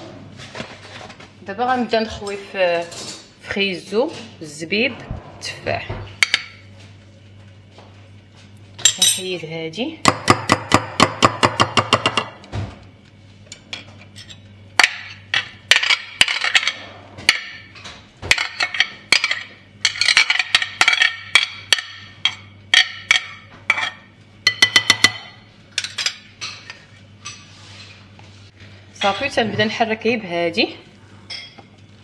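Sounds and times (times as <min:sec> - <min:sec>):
utensil tapping plate and bowl: 0:10.1 - 0:12.4, 0:24.5 - 0:25.4.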